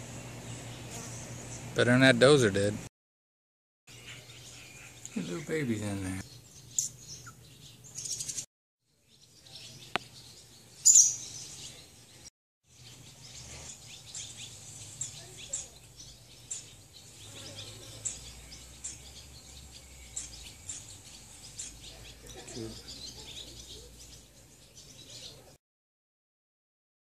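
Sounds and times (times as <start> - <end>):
nestling birds chirping: 0.0 - 2.8, 3.9 - 25.6.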